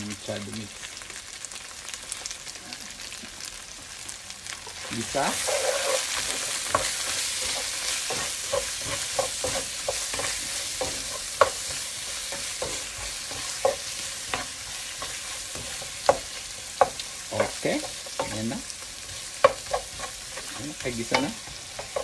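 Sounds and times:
vegetables sizzling in pan: 0:00.0 - 0:22.0
spatula stirring and scraping: 0:04.6 - 0:22.0.

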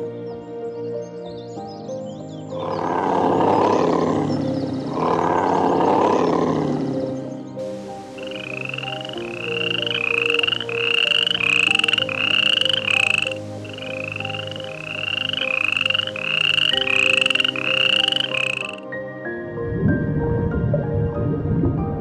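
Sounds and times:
background music tones: 0:00.0 - 0:22.0.

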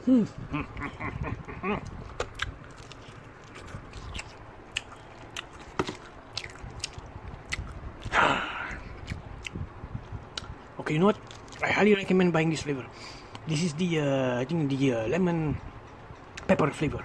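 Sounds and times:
person chewing crispy chicken: 0:01.4 - 0:08.1, 0:08.8 - 0:09.6, 0:11.2 - 0:11.6.

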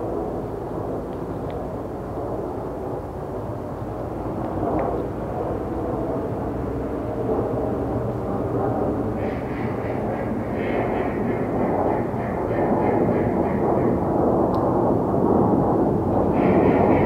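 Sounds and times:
distant engine rumble: 0:00.0 - 0:17.0.

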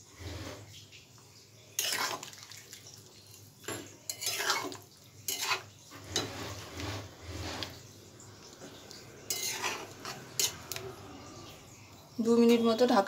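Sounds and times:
spatula scraping a pan: 0:00.0 - 0:00.8, 0:01.7 - 0:02.4, 0:03.3 - 0:08.0, 0:08.6 - 0:10.8.

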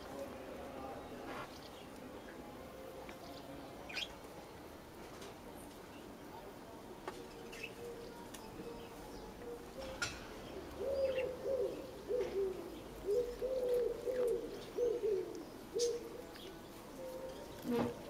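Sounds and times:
pigeon cooing: 0:10.5 - 0:16.4.

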